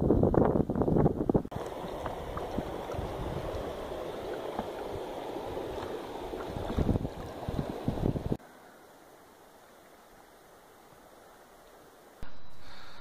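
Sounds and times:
wind buffeting microphone: 0.0s - 8.4s
river water rushing along boat: 1.5s - 12.2s.

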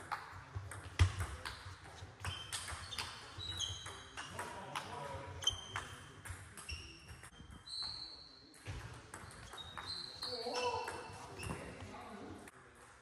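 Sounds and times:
ball bouncing on table: 0.0s - 1.6s, 8.6s - 11.7s
ping pong ball hitting paddles: 0.0s - 7.4s, 8.6s - 11.6s.

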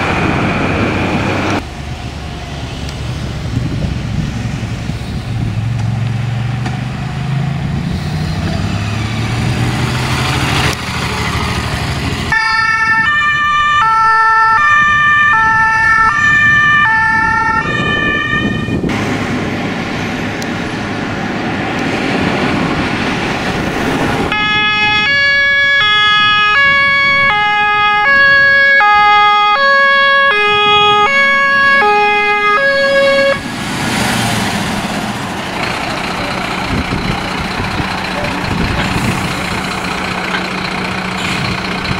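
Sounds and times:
truck engines: 0.0s - 41.9s
two-tone emergency horns: 12.3s - 18.9s, 24.3s - 33.4s.

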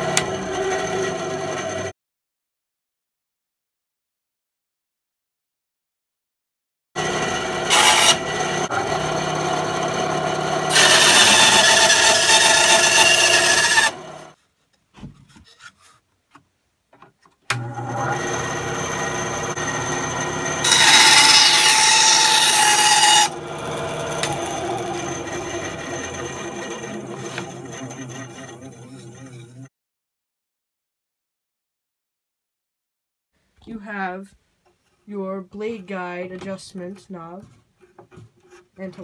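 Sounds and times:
band saw cutting wood: 0.0s - 1.9s, 7.0s - 14.4s, 17.5s - 29.7s.

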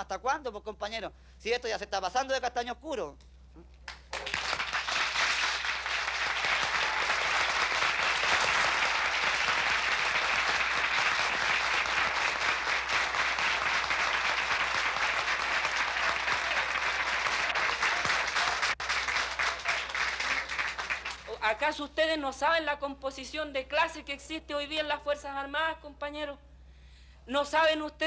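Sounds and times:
audience applauding: 3.9s - 21.4s.

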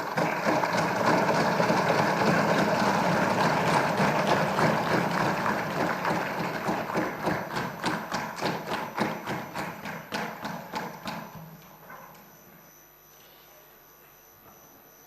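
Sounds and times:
desk-thumping and clapping: 0.0s - 11.5s.

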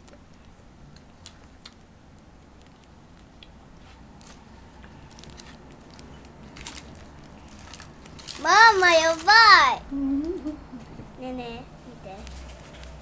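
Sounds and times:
plastic pouch crinkling: 5.0s - 9.6s.

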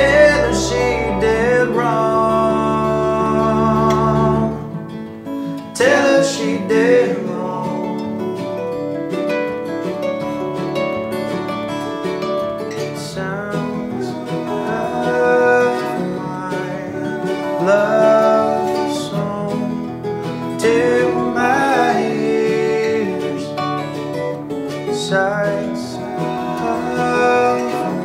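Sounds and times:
acoustic guitar: 0.0s - 28.0s
picked mandolin: 0.0s - 28.0s.

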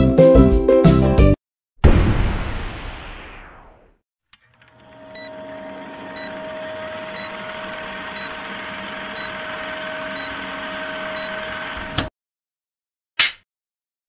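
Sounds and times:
film projector whirring: 4.4s - 12.1s.

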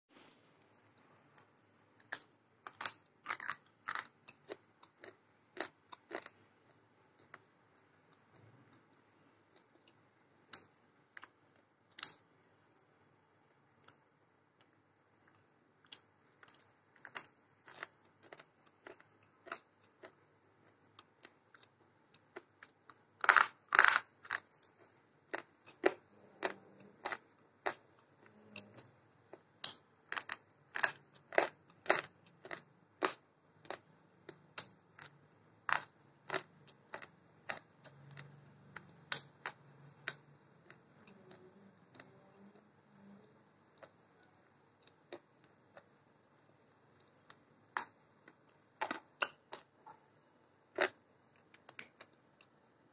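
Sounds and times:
slate pencils crunching between teeth: 2.0s - 6.4s, 15.8s - 22.5s, 23.2s - 24.7s, 29.6s - 42.1s.

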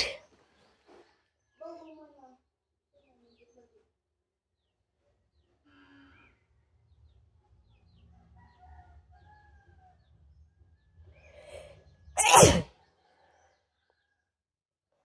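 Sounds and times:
short in-breath: 0.0s - 0.2s
woman sneezing: 0.0s - 0.2s, 12.2s - 12.7s.

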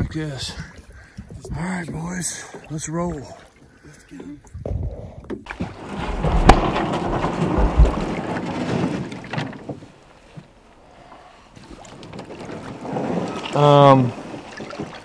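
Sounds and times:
water sloshing around a kayak: 0.3s - 15.0s
dull thumps: 5.4s - 10.5s.

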